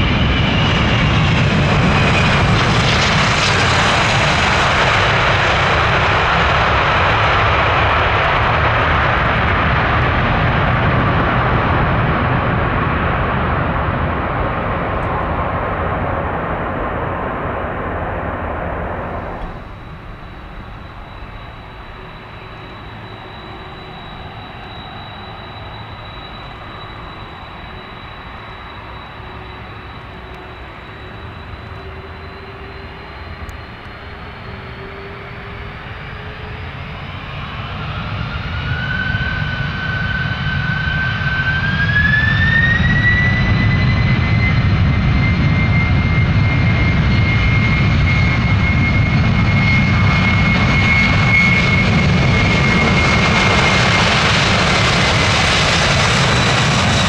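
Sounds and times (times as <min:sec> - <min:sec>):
jet engine roar: 0:00.0 - 0:57.0
jet engine whine: 0:00.0 - 0:57.0.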